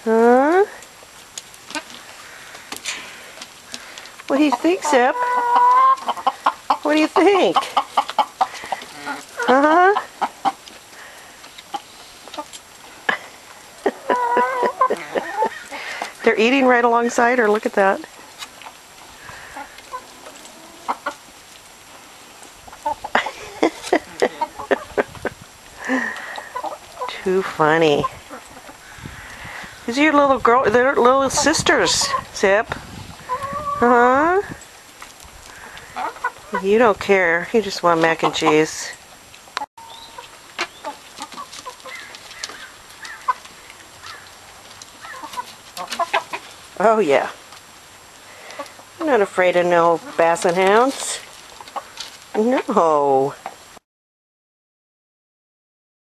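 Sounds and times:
hens clucking softly: 0:04.4 - 0:10.8, 0:11.4 - 0:16.1, 0:19.3 - 0:21.3, 0:22.6 - 0:25.3, 0:25.9 - 0:27.2, 0:33.1 - 0:33.8, 0:35.5 - 0:36.7, 0:45.0 - 0:46.6.

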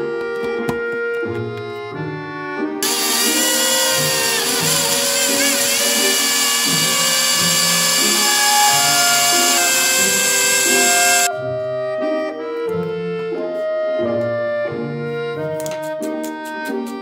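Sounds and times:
background music: 0:00.0 - 0:17.0
blender motor running: 0:02.8 - 0:11.3.

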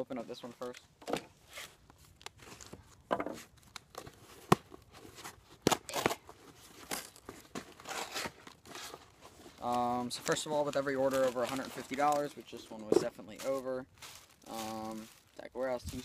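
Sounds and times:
cardboard box tearing: 0:07.0 - 0:09.7.

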